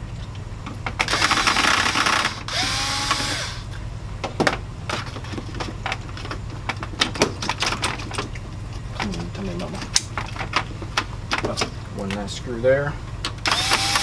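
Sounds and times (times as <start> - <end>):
cordless drill whining: 1.1 - 3.7, 13.4 - 14.0.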